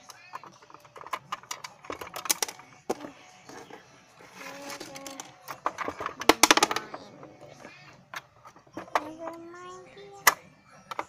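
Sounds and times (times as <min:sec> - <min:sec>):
plastic toy pieces clicking: 0:00.0 - 0:02.9, 0:04.6 - 0:07.0.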